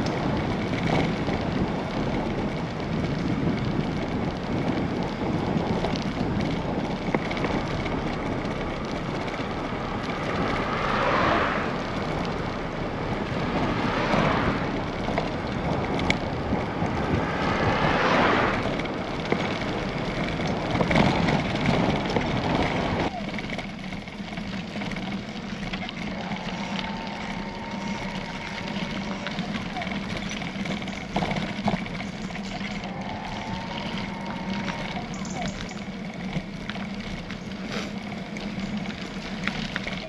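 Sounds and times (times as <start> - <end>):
wind rush on microphone: 0.0 - 23.2.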